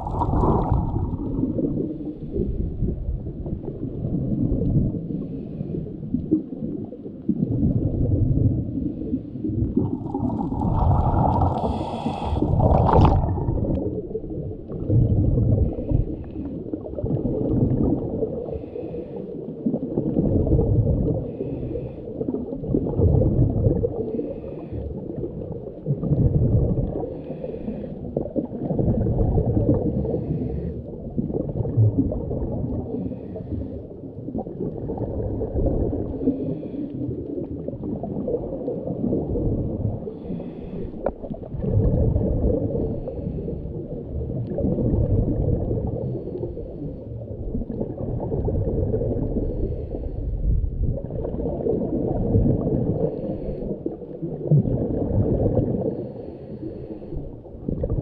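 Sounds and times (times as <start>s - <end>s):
bubbling exhale underwater: 0.0s - 58.0s
diver breathing through regulator: 5.1s - 6.0s, 8.7s - 13.2s, 18.4s - 19.4s, 21.2s - 22.2s, 23.9s - 25.1s, 26.9s - 28.2s, 29.7s - 30.9s, 32.8s - 34.0s, 36.0s - 37.2s, 40.0s - 41.2s, 42.6s - 43.8s, 45.9s - 47.2s, 49.2s - 50.6s, 52.9s - 54.1s, 55.8s - 57.5s.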